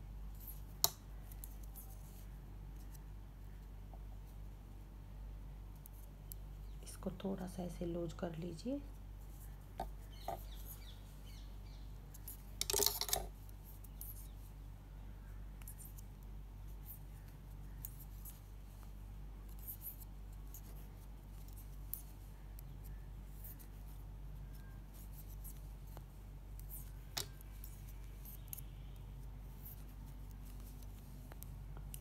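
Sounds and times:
knitting needles clicking: 15.6 - 32.0.

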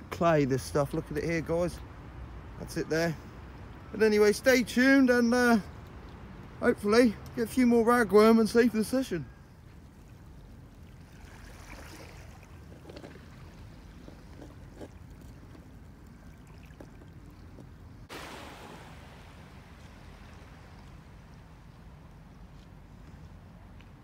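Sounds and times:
faint water: 0.0 - 24.0
bright hiss: 18.1 - 20.0.

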